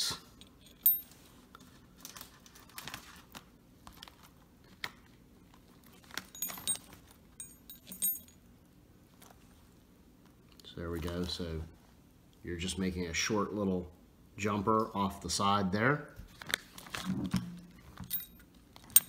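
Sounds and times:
metal parts jingling: 0:00.4 - 0:01.2, 0:06.3 - 0:08.4, 0:18.0 - 0:19.0
small metal clicks and clinks: 0:06.3 - 0:08.4, 0:18.0 - 0:19.0.

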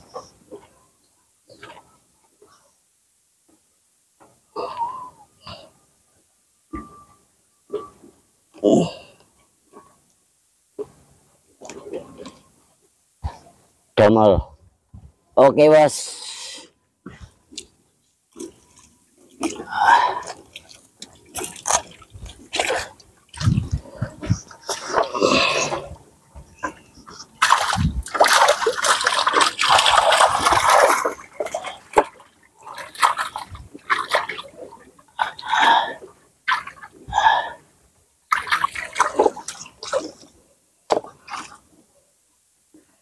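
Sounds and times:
water splashing and dripping: 0:18.3 - 0:35.6, 0:38.3 - 0:40.3.

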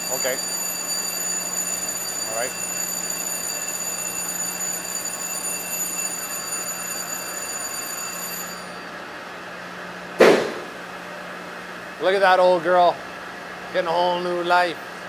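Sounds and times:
thin high-pitched whine: 0:00.0 - 0:09.2.

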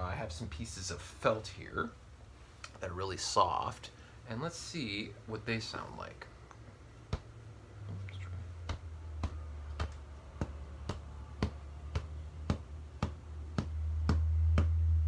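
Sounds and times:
low hum: 0:03.9 - 0:15.0
stick tapping on felt: 0:07.0 - 0:08.0, 0:08.6 - 0:15.0.

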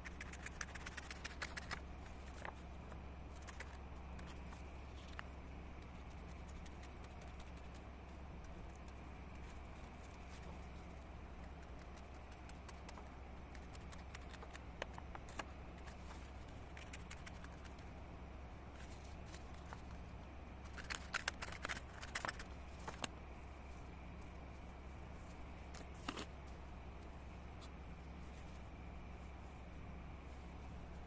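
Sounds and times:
scissors snipping paper: 0:00.0 - 0:02.6, 0:11.4 - 0:17.8, 0:20.7 - 0:23.1
steady low hum: 0:00.0 - 0:31.0
paper handling: 0:00.1 - 0:05.3, 0:11.4 - 0:17.8, 0:20.6 - 0:23.2, 0:25.7 - 0:26.3.

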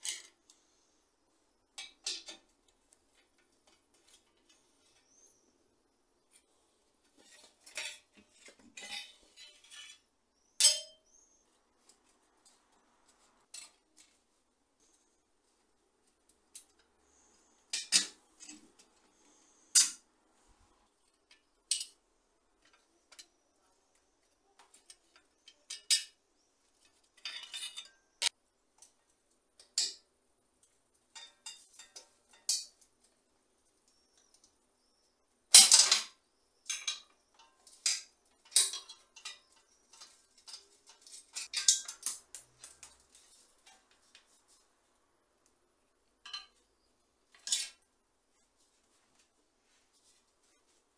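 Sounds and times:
metal parts and tools clinking: 0:00.0 - 0:00.6, 0:07.2 - 0:11.1, 0:17.6 - 0:19.0, 0:21.1 - 0:22.0, 0:24.6 - 0:26.2, 0:26.8 - 0:29.0, 0:31.1 - 0:32.9, 0:35.5 - 0:44.4, 0:46.2 - 0:46.7, 0:47.3 - 0:47.9.

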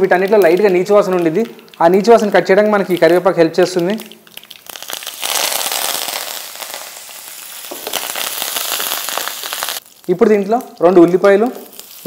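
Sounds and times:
leaves crackling in hot oil: 0:00.0 - 0:12.0
loud oil sizzle: 0:04.0 - 0:12.0.

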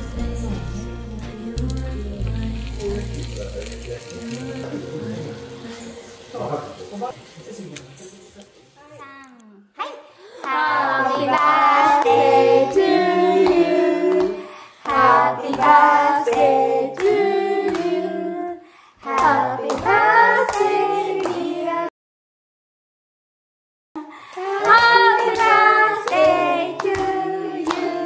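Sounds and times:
voices singing: 0:00.0 - 0:07.0, 0:10.4 - 0:21.9, 0:24.4 - 0:28.0
handclaps: 0:13.4 - 0:16.4, 0:19.1 - 0:21.5, 0:24.3 - 0:28.0.

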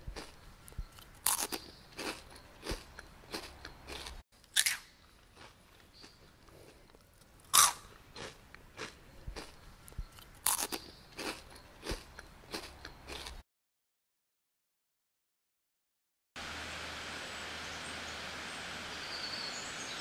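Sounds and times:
potato chips crunching: 0:00.2 - 0:13.4.

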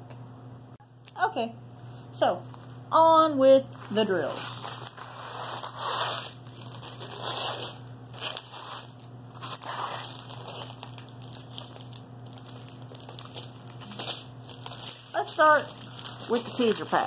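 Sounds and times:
plastic packets crinkling: 0:03.7 - 0:17.0.

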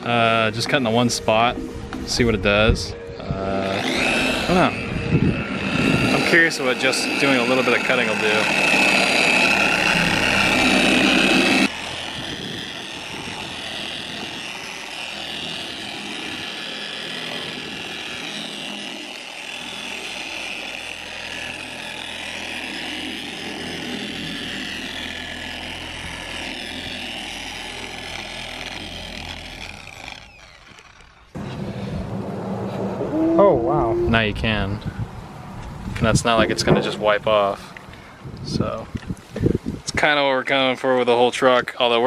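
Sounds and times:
electric polisher motor whine: 0:00.0 - 0:33.2.

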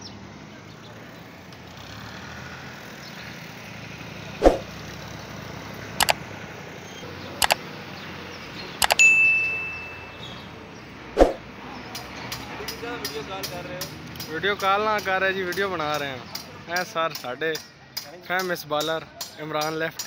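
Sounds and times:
outdoor street noise hum: 0:00.0 - 0:20.0
whoosh: 0:04.4 - 0:04.7, 0:11.2 - 0:11.4
bright bell ding: 0:08.9 - 0:10.4.

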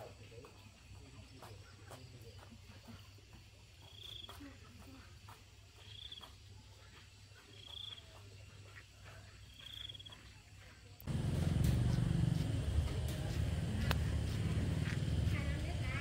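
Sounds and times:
steady low rumble: 0:11.1 - 0:16.0.

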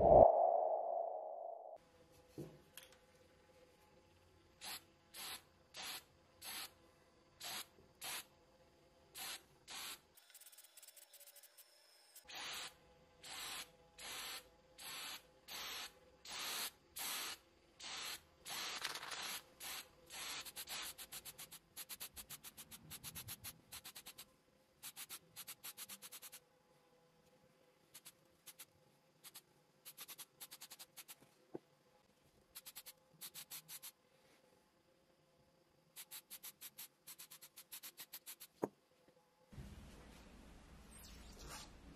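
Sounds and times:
spray paint can hissing: 0:04.6 - 0:06.7, 0:07.4 - 0:08.3, 0:09.2 - 0:11.4, 0:12.3 - 0:26.4, 0:28.0 - 0:31.2, 0:32.6 - 0:34.0, 0:36.0 - 0:38.6.

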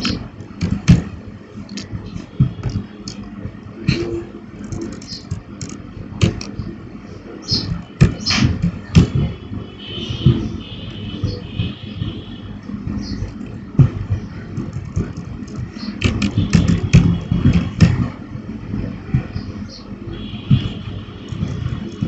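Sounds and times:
low background hum: 0:00.0 - 0:22.0
keyboard keystrokes: 0:04.6 - 0:06.6, 0:14.6 - 0:18.0.

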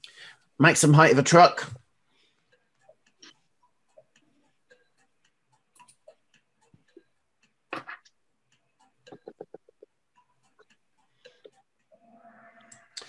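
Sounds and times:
faint clicks and ticks: 0:01.8 - 0:13.0.

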